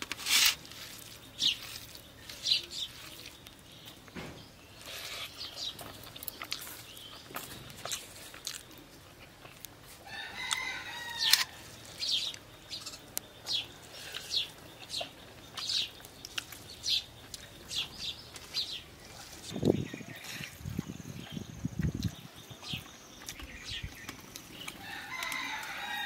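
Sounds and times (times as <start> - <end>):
rooster crowing: 10.0 - 11.7, 24.8 - 26.0.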